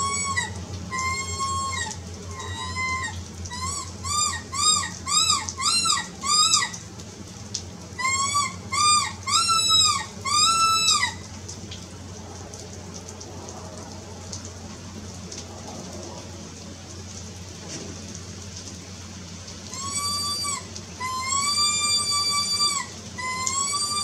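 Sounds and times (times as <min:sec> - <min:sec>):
predator caller yelping calls: 0:00.0 - 0:06.8, 0:08.0 - 0:11.2, 0:19.7 - 0:24.0
rain falling: 0:00.0 - 0:24.0.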